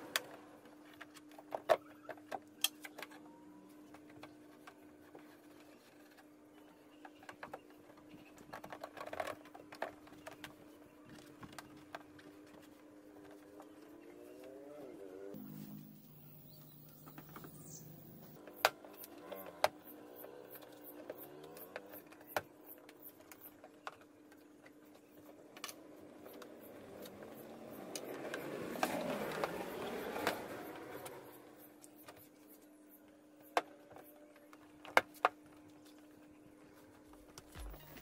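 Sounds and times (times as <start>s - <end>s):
steady low hum: 15.4s - 18.4s.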